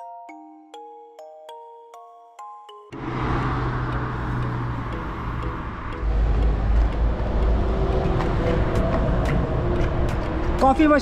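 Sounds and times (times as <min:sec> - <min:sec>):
vehicle engine rumble: 0:03.0 - 0:11.0.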